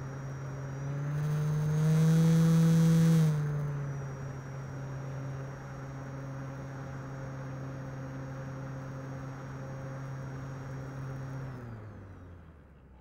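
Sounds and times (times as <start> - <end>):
model airplane motor whining: 0.0 - 4.0.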